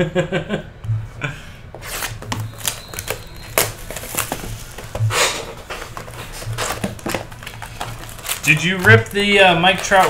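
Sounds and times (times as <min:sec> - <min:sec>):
cardboard scraping: 0:01.7 - 0:10.0
plastic wrap crinkling: 0:01.8 - 0:10.0.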